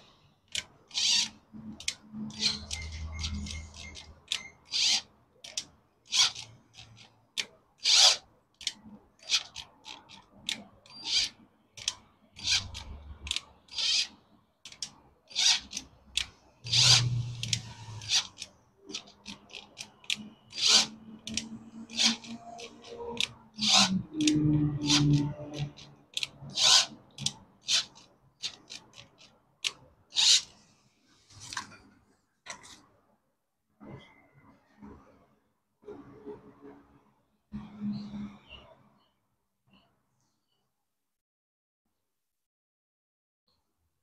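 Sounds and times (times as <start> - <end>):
ratchet clicks: 0.5 - 14.1, 14.7 - 30.5
metal scraping: 16.6 - 18.4, 20.5 - 25.8.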